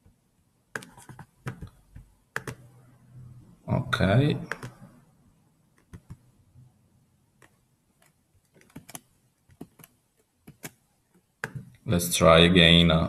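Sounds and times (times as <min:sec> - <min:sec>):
keyboard key presses: 0:00.8 - 0:02.7, 0:04.4 - 0:04.9, 0:05.8 - 0:06.2, 0:07.4 - 0:10.8, 0:11.4 - 0:11.8.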